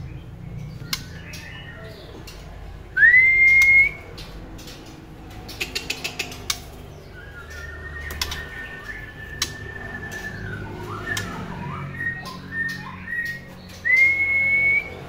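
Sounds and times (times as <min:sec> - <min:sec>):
bird whistled call: 0:03.0 - 0:04.0, 0:07.1 - 0:15.0.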